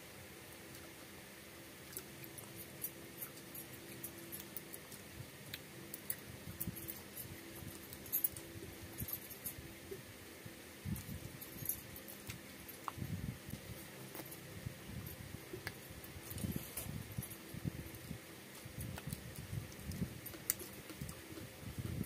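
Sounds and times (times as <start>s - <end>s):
mouths chewing: 15.5s - 22.0s.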